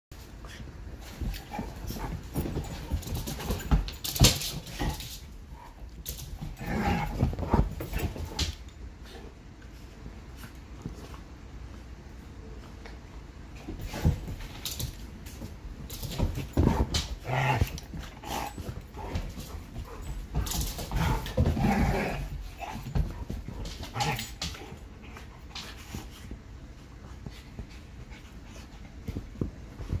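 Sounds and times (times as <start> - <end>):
scuffling and knocks: 0.2 - 11.4, 13.4 - 30.0
dogs play-fighting vocalizing: 0.4 - 8.6, 15.9 - 26.5.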